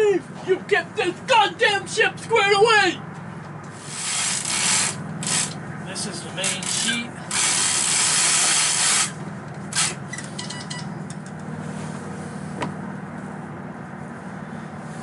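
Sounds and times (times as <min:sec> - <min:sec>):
rope rushing through winch: 0:03.7 - 0:05.6, 0:06.5 - 0:10.0.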